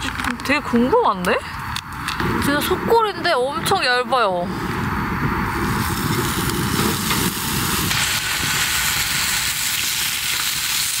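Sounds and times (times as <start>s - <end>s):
meat sizzling on a griddle: 5.6s - 11.0s.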